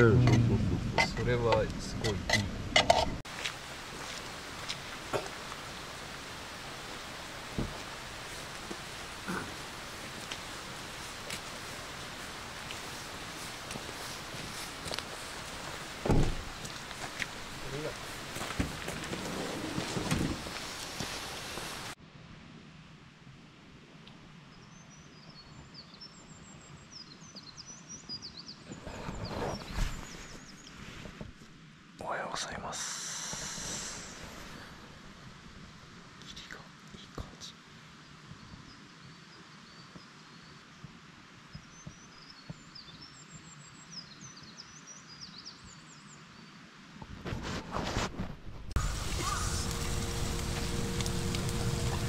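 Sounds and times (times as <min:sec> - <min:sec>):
steady hiss: 0:03.3 - 0:22.0, 0:29.7 - 0:39.4, 0:47.9 - 0:52.0
small birds chirping: 0:24.5 - 0:30.9, 0:36.2 - 0:46.6.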